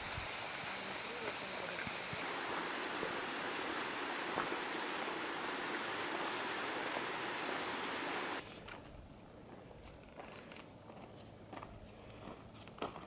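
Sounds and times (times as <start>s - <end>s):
rushing stream water: 0.0s - 8.4s.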